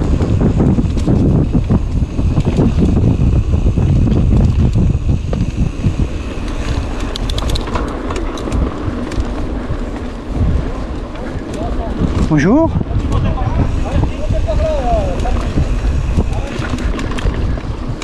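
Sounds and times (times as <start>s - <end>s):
bike rattling over bumps: 0.0s - 18.0s
wind buffeting microphone: 0.0s - 18.0s
sharp clicks: 6.4s - 9.3s.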